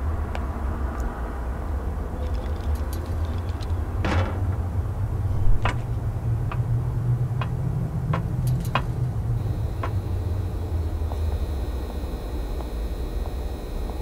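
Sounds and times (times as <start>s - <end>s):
low city rumble: 0.0s - 14.0s
footsteps on metal grating: 5.4s - 6.7s.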